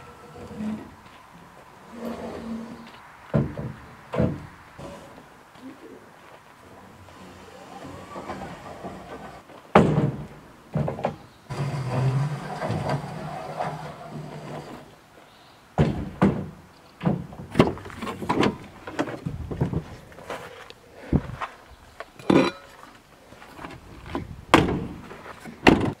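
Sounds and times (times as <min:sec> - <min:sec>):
wooden boards knocking: 0:03.3 - 0:04.5, 0:09.7 - 0:12.1, 0:15.8 - 0:19.9
boards scraping while sliding: 0:07.0 - 0:09.5, 0:11.5 - 0:15.0.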